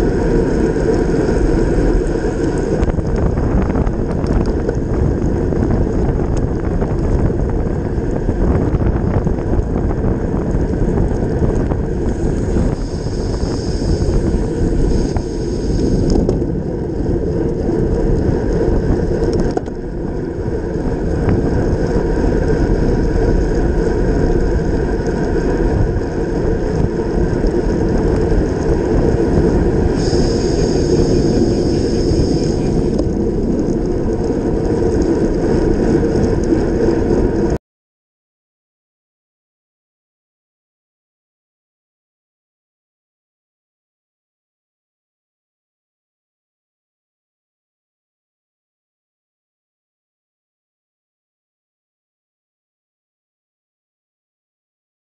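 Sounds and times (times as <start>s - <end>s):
bike tyres on wet road: 0.0s - 37.6s
wind rushing over microphone: 0.0s - 37.6s
high hiss: 12.4s - 16.0s, 29.9s - 33.0s.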